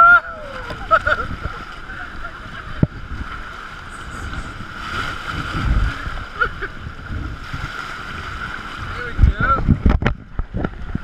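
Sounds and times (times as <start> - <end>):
wind buffeting microphone: 0.3 - 11.0.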